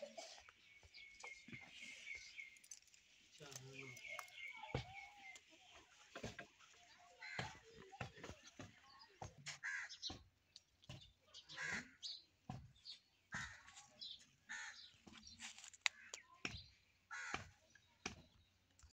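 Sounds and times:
voices: 3.3s - 10.1s.

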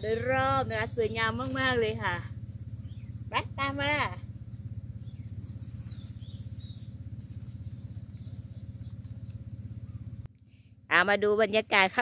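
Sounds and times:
low rumble: 0.0s - 10.3s
faint bird chirps: 2.3s - 3.6s, 4.3s - 11.0s.

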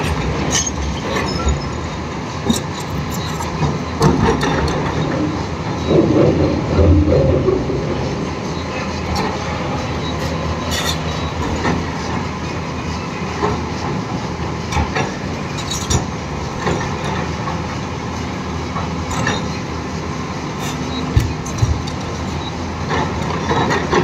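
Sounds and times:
excavator diesel engine running: 0.0s - 24.0s.

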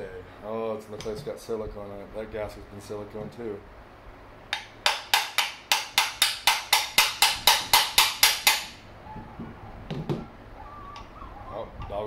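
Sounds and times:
hammer tapping on metal: 4.5s - 8.8s.

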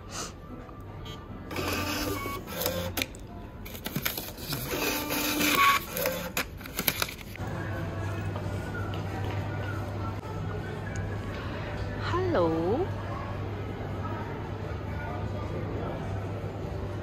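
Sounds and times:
receipt printer printing: 1.5s - 3.1s, 3.8s - 6.5s.

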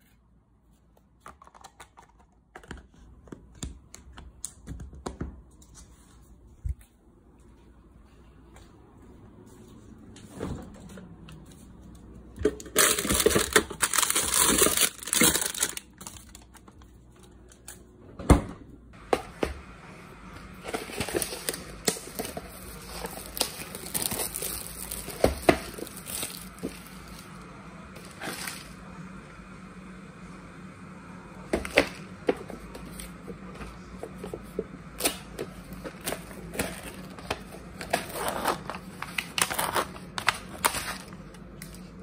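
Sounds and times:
plastic packaging crinkling: 12.5s - 17.4s, 20.7s - 27.3s, 36.0s - 42.0s.

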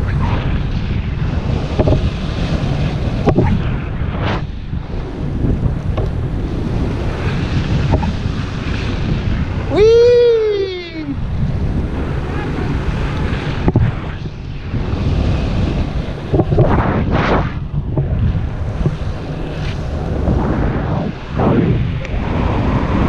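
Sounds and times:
heavy wind on microphone: 0.0s - 23.0s.

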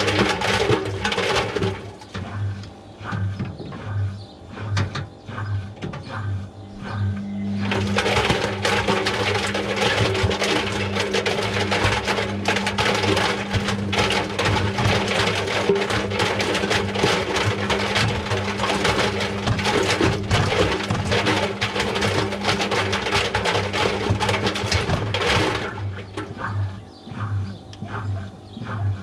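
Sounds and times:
washing machine motor hum: 0.0s - 29.0s
water sloshing and knocking: 7.7s - 26.5s.

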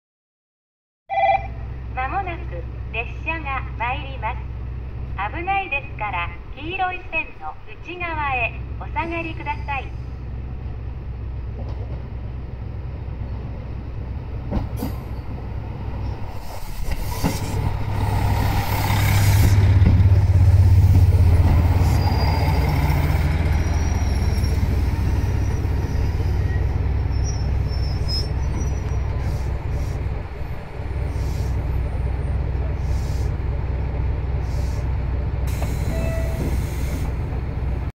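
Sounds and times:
diesel train engines droning: 1.1s - 37.9s
train brake squeals: 21.8s - 30.0s, 35.5s - 37.2s.

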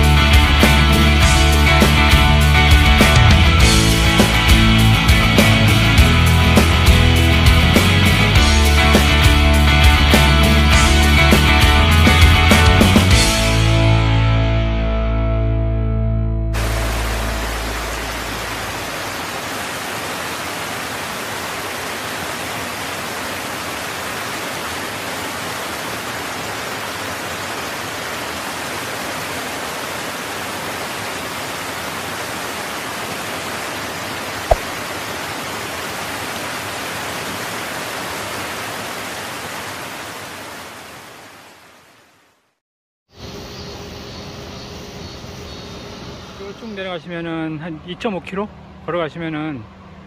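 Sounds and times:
mountain stream rushing: 16.6s - 42.4s.

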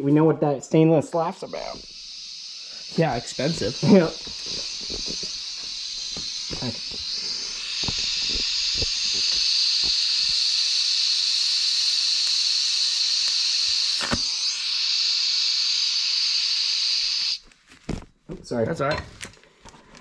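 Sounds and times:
welding torch hissing: 1.1s - 17.5s.

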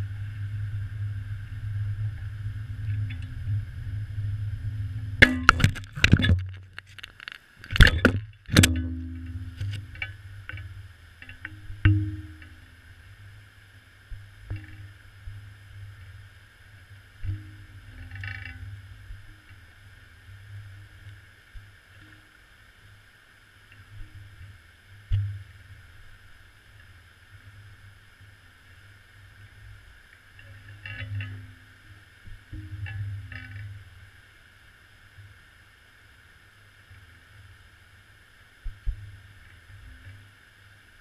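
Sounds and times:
faint hum: 0.0s - 41.0s
underwater low rumble: 0.0s - 41.0s.

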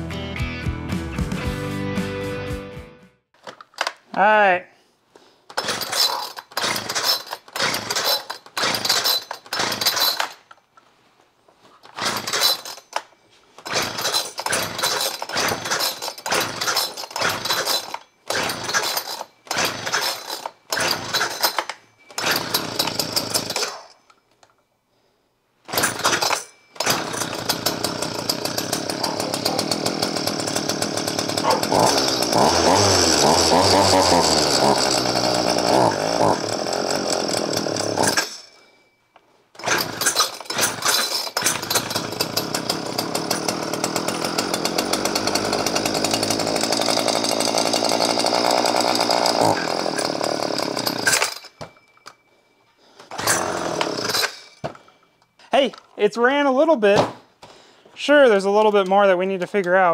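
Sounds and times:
chainsaw starter cord cranking: 5.5s - 10.6s, 11.8s - 24.1s, 25.6s - 38.7s, 39.5s - 52.2s, 53.0s - 54.9s
chainsaw engine running: 5.6s - 10.3s, 11.9s - 12.8s, 13.6s - 23.8s, 25.7s - 38.6s, 39.6s - 51.5s, 53.1s - 54.5s.

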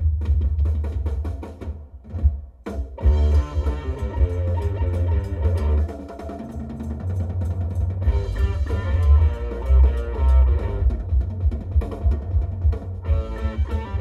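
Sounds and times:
drum beat: 0.0s - 14.0s
heavy deep bass: 3.0s - 5.9s, 8.0s - 14.0s
plucked string riff: 3.0s - 6.0s, 8.0s - 11.0s, 13.0s - 14.0s.

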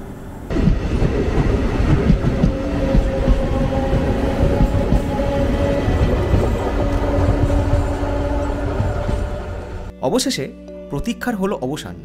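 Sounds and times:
train wheels knocking on rails: 0.5s - 9.9s.

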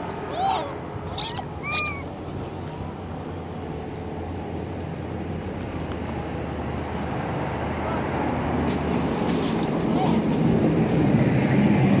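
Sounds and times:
macaque call: 0.3s - 2.1s.

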